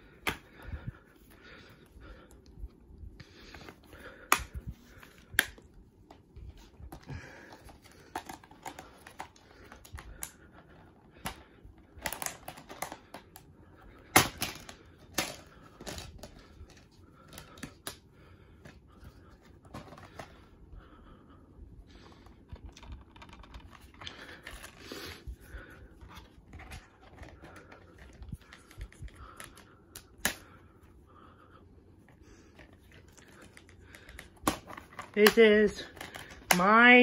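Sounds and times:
plastic cases clicking and snapping: 0:06.8 - 0:18.8, 0:22.3 - 0:24.8, 0:26.0 - 0:30.5, 0:32.5 - 0:36.8.

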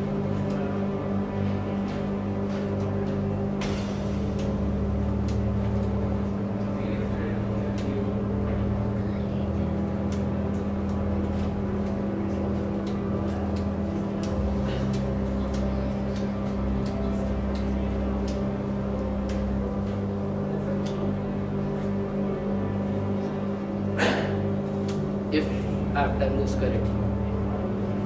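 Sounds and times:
low hum: 0:00.0 - 0:28.0
playing cards clicking and snapping: 0:12.8 - 0:19.5.

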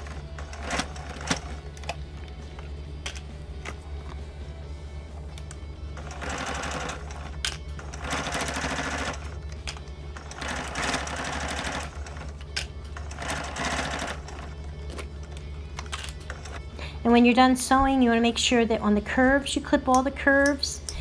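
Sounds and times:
sewing machine stitching: 0:00.0 - 0:01.6, 0:06.0 - 0:09.4, 0:10.2 - 0:12.4, 0:13.0 - 0:14.6.

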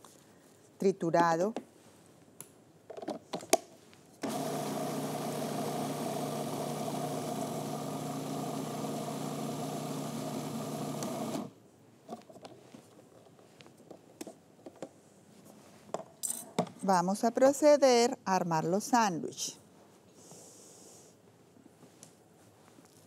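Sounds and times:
food processor motor grinding: 0:04.2 - 0:11.5.

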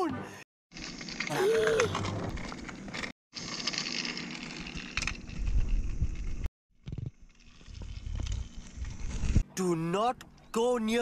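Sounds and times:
toy train motor whirring: 0:00.8 - 0:09.4.

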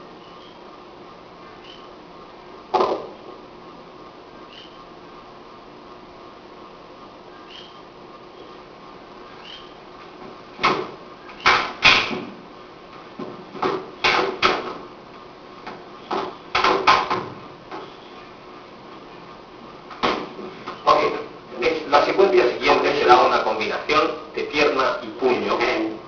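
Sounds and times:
hands slapping and thumping: 0:10.6 - 0:12.3, 0:15.7 - 0:17.9, 0:19.9 - 0:20.8.

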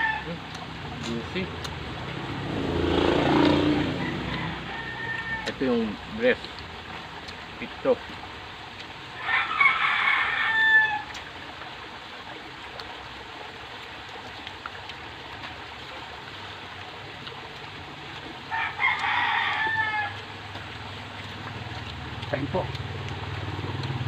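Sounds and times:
rooster crowing: 0:00.0 - 0:00.4, 0:03.2 - 0:05.8, 0:09.2 - 0:11.2, 0:18.5 - 0:20.4.

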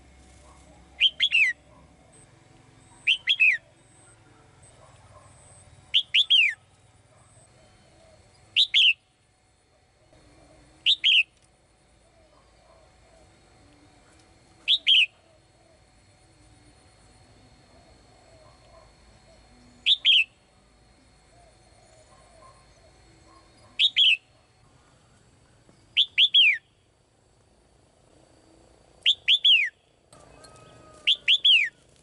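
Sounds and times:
bird singing whistled notes: 0:01.0 - 0:01.6, 0:03.0 - 0:03.6, 0:05.9 - 0:06.6, 0:07.6 - 0:09.1, 0:10.8 - 0:11.3, 0:14.7 - 0:15.2, 0:19.8 - 0:20.4, 0:23.8 - 0:24.3, 0:26.0 - 0:26.7, 0:29.0 - 0:29.8, 0:30.4 - 0:31.8.

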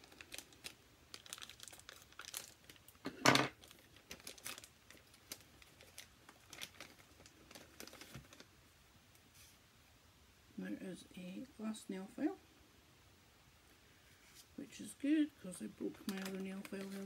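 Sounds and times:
plastic bag crinkling: 0:00.0 - 0:08.5, 0:15.7 - 0:17.0.

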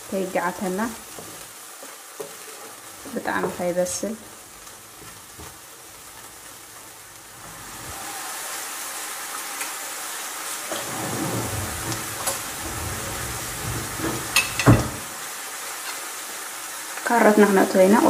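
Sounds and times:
onions sizzling in oil: 0:00.0 - 0:18.0
low rumbling: 0:10.7 - 0:15.2.

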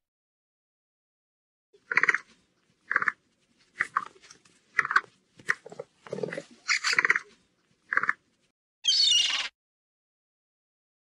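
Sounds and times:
capybara making sharp sounds: 0:01.8 - 0:07.3, 0:07.9 - 0:09.5.

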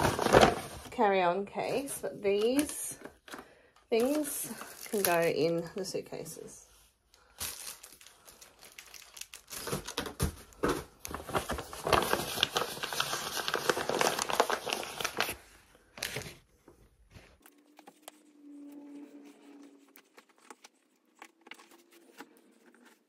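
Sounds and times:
plastic packaging crinkling: 0:04.0 - 0:05.5, 0:07.3 - 0:16.4.

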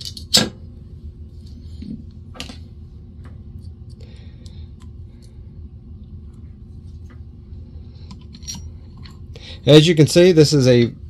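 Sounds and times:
metal parts and tools clinking: 0:00.0 - 0:00.4, 0:08.1 - 0:09.2.

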